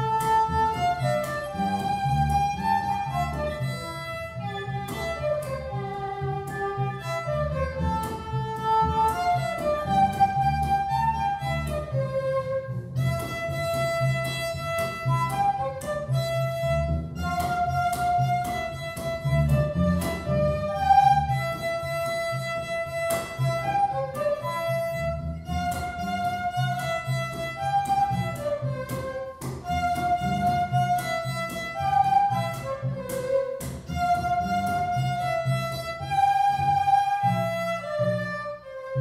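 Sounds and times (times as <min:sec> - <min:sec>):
double bass: 0:00.0 - 0:39.0
violin: 0:00.0 - 0:39.0
flute: 0:09.6 - 0:14.2, 0:15.0 - 0:18.7, 0:36.0 - 0:39.0.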